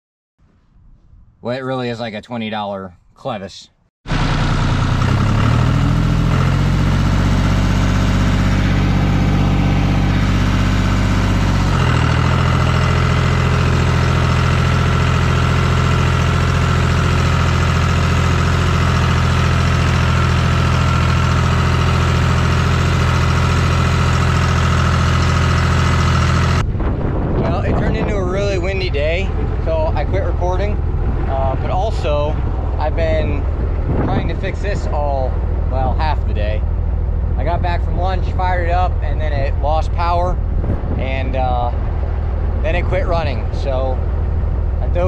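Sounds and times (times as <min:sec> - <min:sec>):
diesel tractor engine running: 0:04.1 - 0:45.0.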